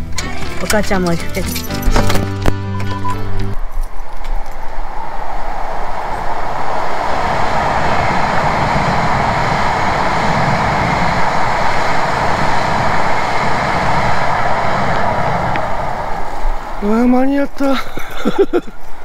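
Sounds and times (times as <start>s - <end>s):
train rushing past: 3.1s - 17.6s.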